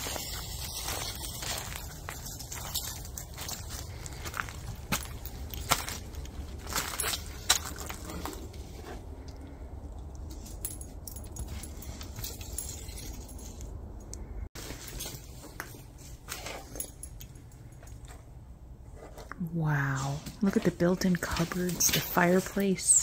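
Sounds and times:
light clicks and crunches: 0.0s - 18.3s
faint metallic jingle: 10.2s - 18.4s.

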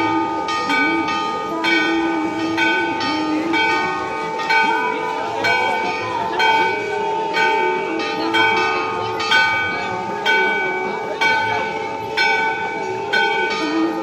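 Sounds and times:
temple bells ringing: 0.0s - 14.0s.

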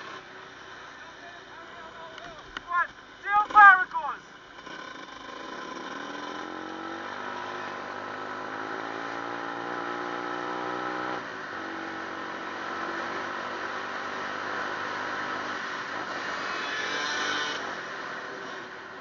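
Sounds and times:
vehicle engine accelerating: 4.5s - 18.7s.

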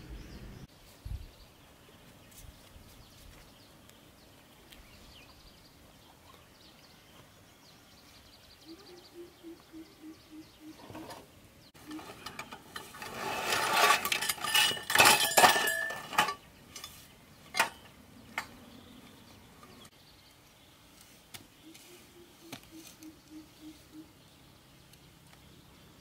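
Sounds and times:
faint pulsing animal call: 8.6s - 10.9s, 21.6s - 24.2s
metal poles clinking and rattling: 11.8s - 18.6s.

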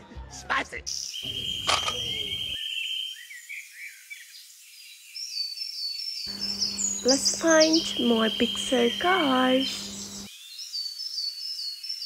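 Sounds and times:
high-pitched insect trill: 6.3s - 10.3s.

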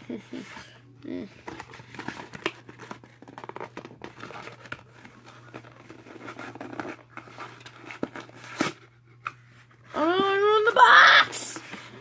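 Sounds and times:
cardboard box rustling and scraping: 1.4s - 8.8s.

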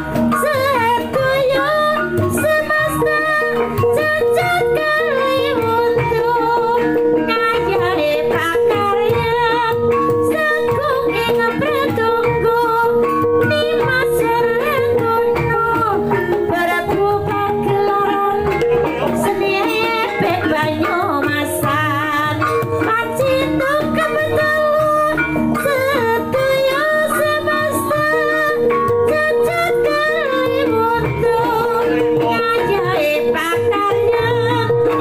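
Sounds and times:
hand drum: 0.0s - 35.0s.

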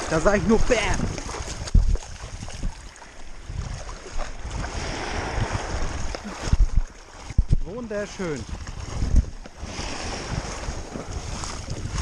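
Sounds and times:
small waves breaking: 0.0s - 12.0s
water washing and sloshing: 0.0s - 12.0s
wind on microphone: 0.0s - 12.0s.

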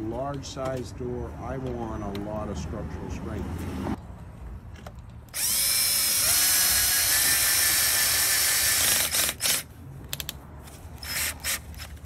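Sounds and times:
cordless drill motor whining: 5.3s - 9.7s, 11.0s - 11.9s.

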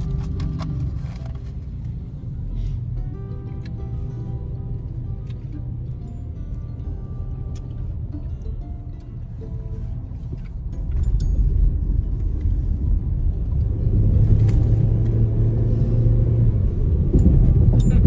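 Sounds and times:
car engine and road rumble: 0.0s - 18.0s.

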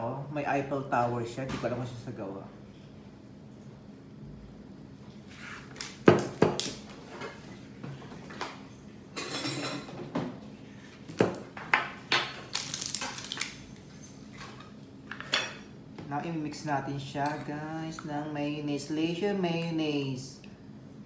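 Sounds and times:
tableware clatter: 9.1s - 10.4s, 11.2s - 15.7s.

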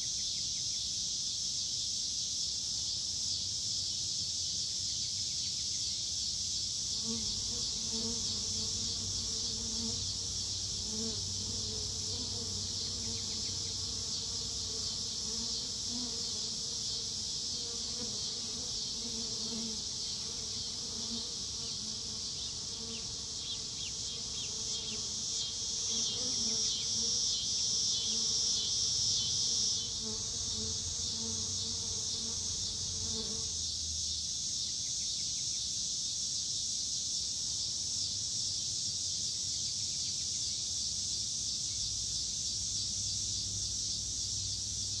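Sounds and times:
high-pitched insect chorus: 0.0s - 45.0s
insect wings buzzing: 6.8s - 33.8s.

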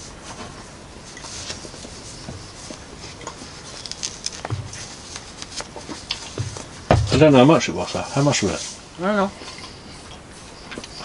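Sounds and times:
man chewing: 1.7s - 6.8s.

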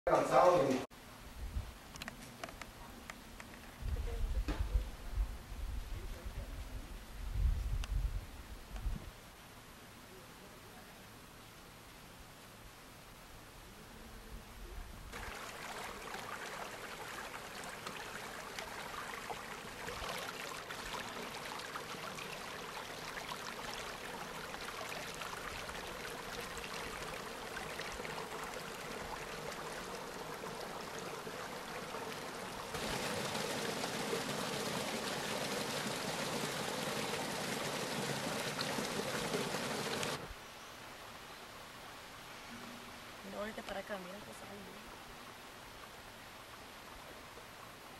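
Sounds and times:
stream water flowing: 15.1s - 40.4s.

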